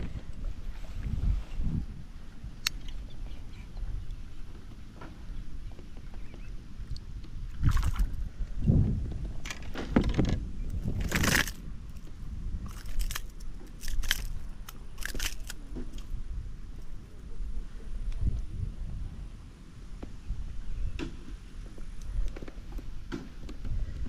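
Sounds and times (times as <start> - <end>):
water splashing and sloshing: 7.5 - 8.3, 10.8 - 16.1.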